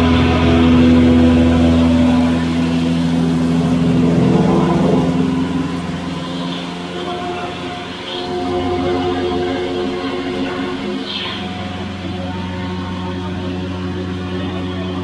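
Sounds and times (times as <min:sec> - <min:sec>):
electric flour mill humming: 0:00.0 - 0:15.0.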